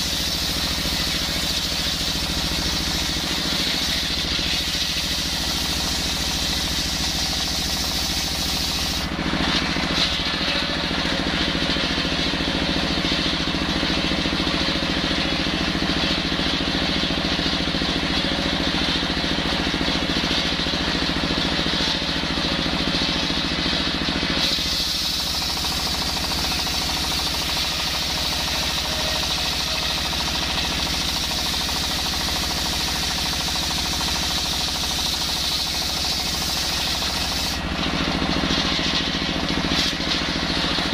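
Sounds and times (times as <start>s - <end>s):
saw blade cutting hard wood: 0.0s - 11.6s, 24.3s - 37.7s
diesel engine running: 0.0s - 40.9s.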